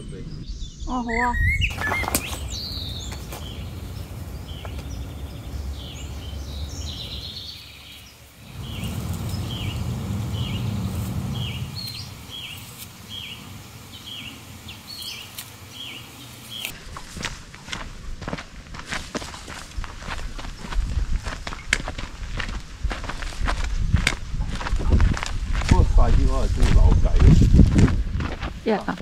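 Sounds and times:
bird chirping: 0:00.0 - 0:16.8
low outdoor rumble: 0:01.7 - 0:16.7.

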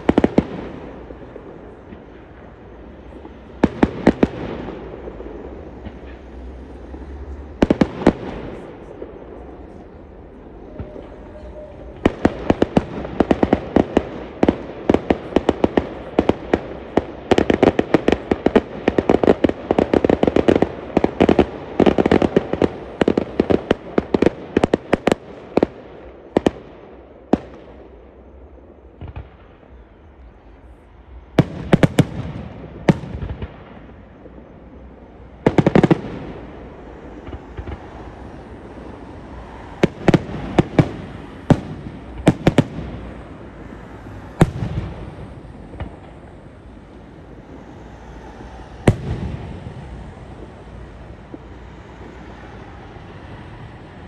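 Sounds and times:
fireworks banging and crackling: 0:00.0 - 0:54.0.

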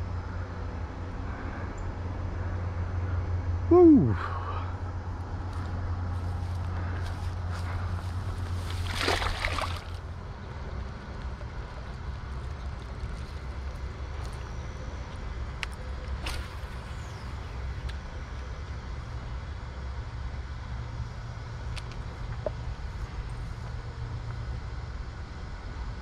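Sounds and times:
fish splashing into water: 0:08.5 - 0:10.1.

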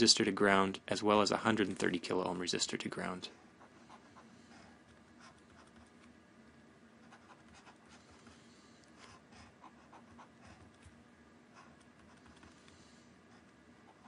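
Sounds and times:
low steady hum: 0:00.0 - 0:14.0
stylus scratching on drawing tablet: 0:03.6 - 0:06.0, 0:07.0 - 0:08.4.

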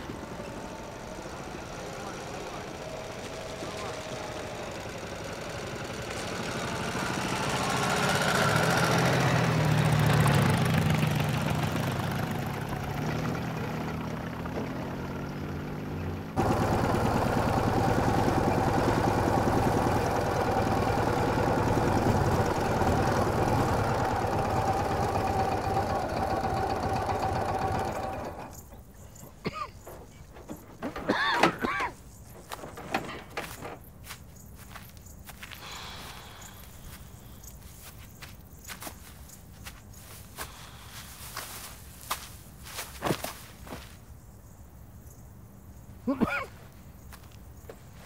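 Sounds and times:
motorcycle engine passing: 0:00.0 - 0:30.9.

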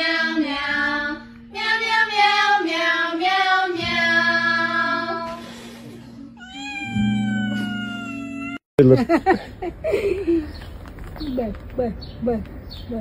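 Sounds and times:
cat meowing: 0:06.4 - 0:08.6.

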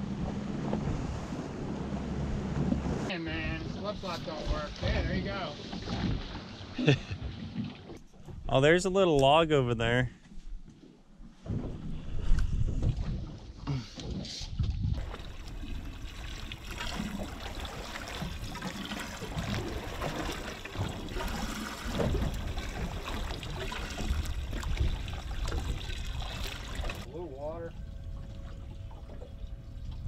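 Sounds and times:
water sloshing against boat hull: 0:00.0 - 0:08.5, 0:10.6 - 0:30.0
wind on microphone: 0:11.4 - 0:27.1, 0:27.7 - 0:30.0.

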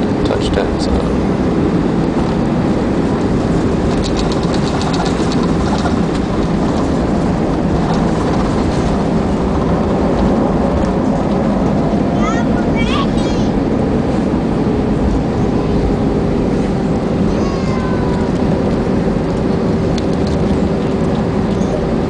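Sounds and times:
airplane cabin rumble: 0:00.0 - 0:22.0
rapid rattle of ticks: 0:03.2 - 0:11.4.

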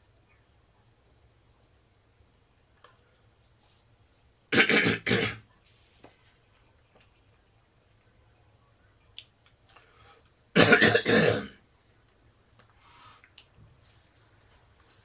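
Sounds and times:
man coughing: 0:04.6 - 0:05.4, 0:10.6 - 0:11.5.

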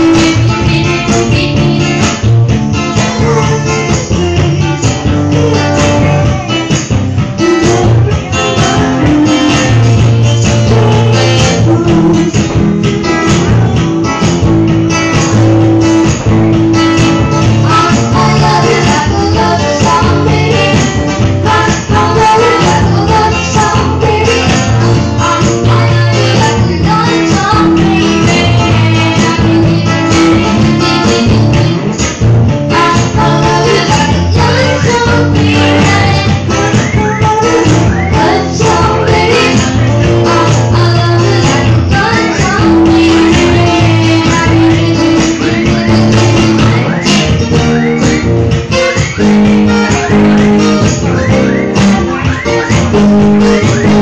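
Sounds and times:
acoustic guitar strumming: 0:00.0 - 0:54.0
man singing into a microphone: 0:03.0 - 0:06.7, 0:07.3 - 0:12.6.

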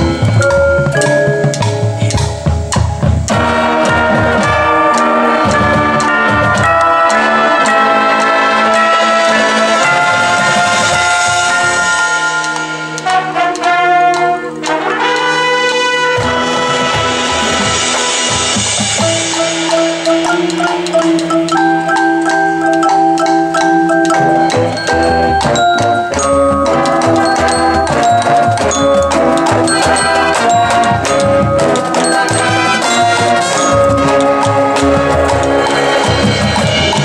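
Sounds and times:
mallet percussion notes: 0:00.0 - 0:37.0
marching band playing: 0:00.0 - 0:37.0.

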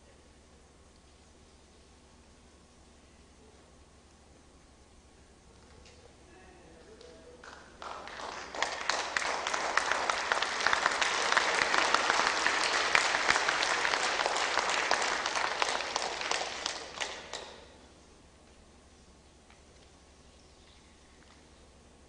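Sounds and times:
audience applauding: 0:07.0 - 0:17.8.

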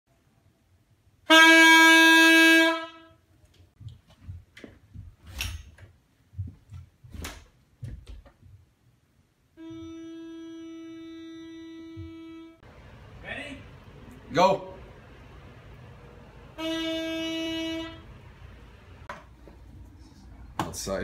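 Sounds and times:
horn playing a note: 0:01.3 - 0:03.2, 0:09.6 - 0:12.7, 0:16.5 - 0:18.3
knocks and shuffles: 0:03.4 - 0:08.9
muffled horn note: 0:09.6 - 0:12.7, 0:16.5 - 0:18.2.

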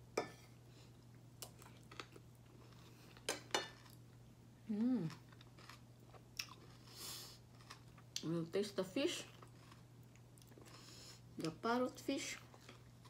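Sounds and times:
person humming mmm: 0:04.7 - 0:05.2.

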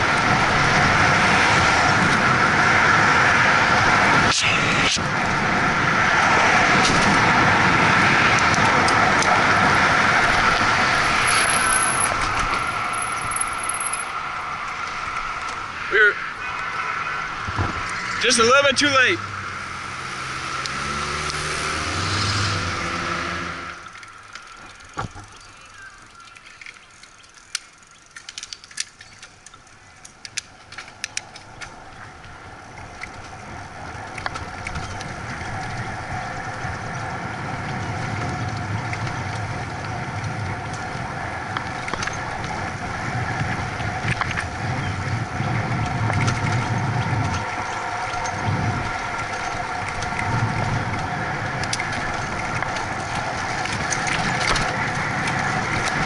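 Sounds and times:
wind rushing: 0:00.0 - 0:14.6
motor vehicle engine: 0:00.0 - 0:56.0
bicycle clicks and rattles: 0:06.7 - 0:15.8, 0:23.8 - 0:56.0.

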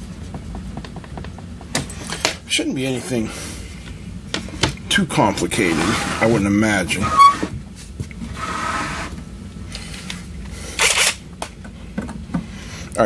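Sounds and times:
metal case scraping: 0:05.5 - 0:07.6.

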